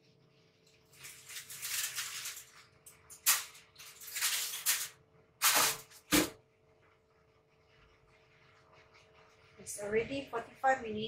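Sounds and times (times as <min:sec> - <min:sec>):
aluminium foil crinkling: 0:00.6 - 0:06.2.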